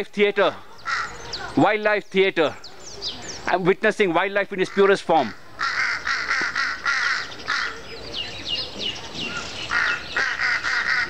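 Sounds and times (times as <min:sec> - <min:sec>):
crows cawing: 0:00.8 - 0:01.4, 0:04.6 - 0:08.0, 0:09.2 - 0:11.0.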